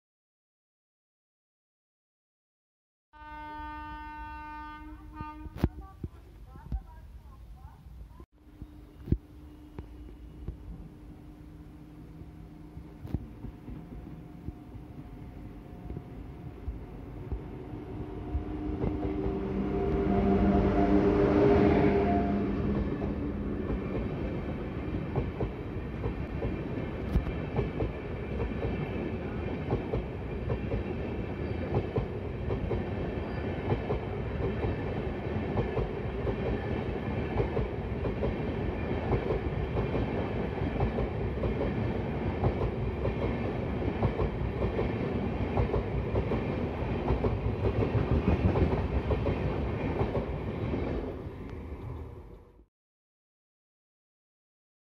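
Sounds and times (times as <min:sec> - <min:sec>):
train wheels rumbling on rail: 0:12.2 - 0:52.1.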